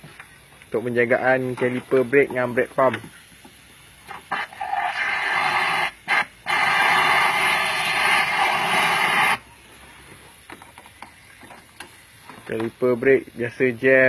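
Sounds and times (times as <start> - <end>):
pressurised spray hissing: 0.8 - 10.4.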